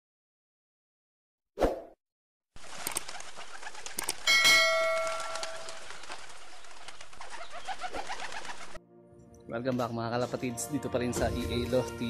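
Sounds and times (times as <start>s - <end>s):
bell ding: 4.3s - 5.8s
pigeons cooing: 7.1s - 8.8s.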